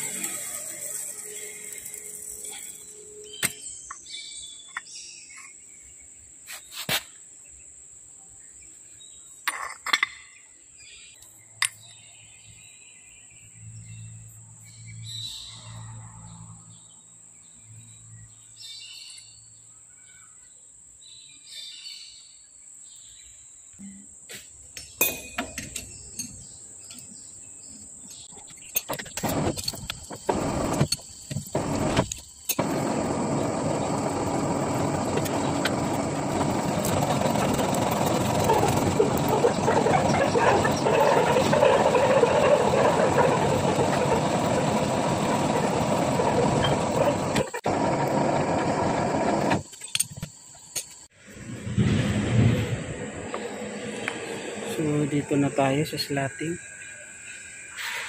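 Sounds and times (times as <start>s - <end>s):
high-pitched whine: 29.2s - 50.1s, 50.7s - 57.8s.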